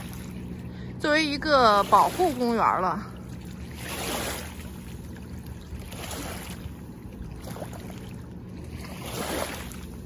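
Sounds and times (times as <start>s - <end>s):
distant boat motor drone: 0.0s - 10.0s.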